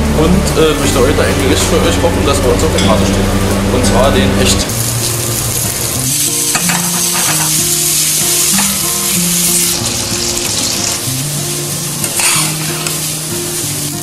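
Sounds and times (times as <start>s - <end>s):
quiet low melody: 0.0s - 14.0s
fish sizzling in oil: 4.7s - 14.0s.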